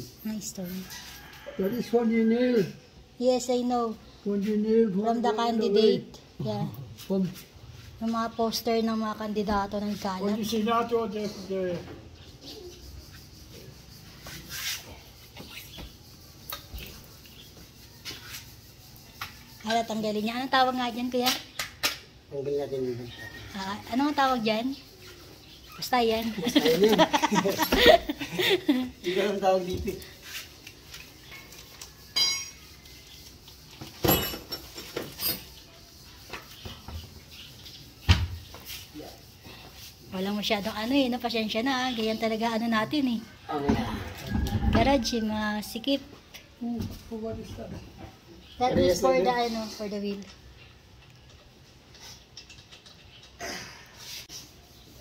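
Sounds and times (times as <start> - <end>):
metal knocks and clinks: 32.1 - 32.7, 33.9 - 35.6
ringing metallic clink: 32.2 - 32.7.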